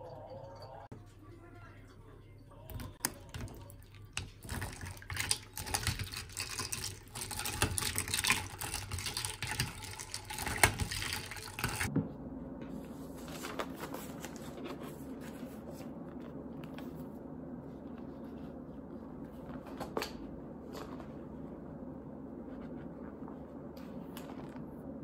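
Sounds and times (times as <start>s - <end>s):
steady low hum: 0.0s - 25.0s
spoon stirring ice in mug: 2.4s - 11.9s.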